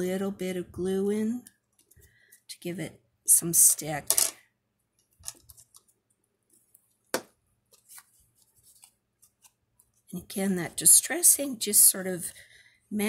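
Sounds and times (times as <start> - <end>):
paper handling: 7.7 - 10.1.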